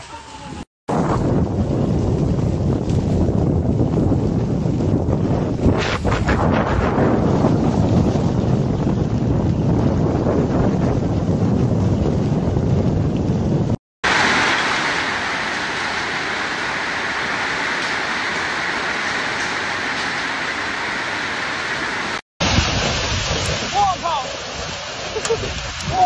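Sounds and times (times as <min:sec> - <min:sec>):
wind-driven rain hiss: 0:00.1 - 0:26.0
wind buffeting microphone: 0:00.5 - 0:13.8
wind gusts through door: 0:00.9 - 0:26.0.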